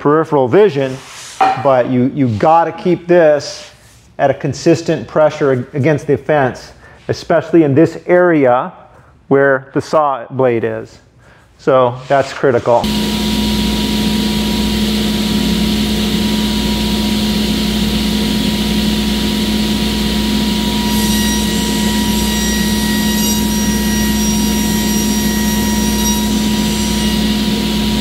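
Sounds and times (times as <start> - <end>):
saw blade cutting whine: 12.8 - 28.0
table saw motor hum: 12.8 - 28.0.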